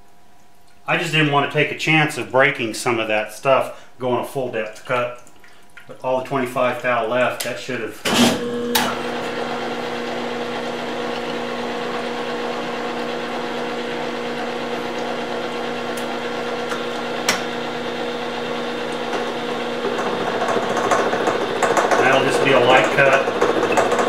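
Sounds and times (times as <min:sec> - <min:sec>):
milling machine cutting gear: 0:08.1 - 0:24.0.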